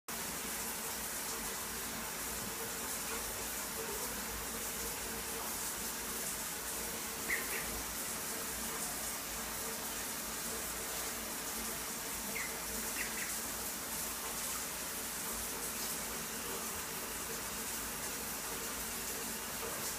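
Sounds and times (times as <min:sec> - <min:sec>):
steady hiss: 0:00.1 - 0:19.9
ducklings peeping: 0:07.2 - 0:07.8, 0:12.3 - 0:13.4.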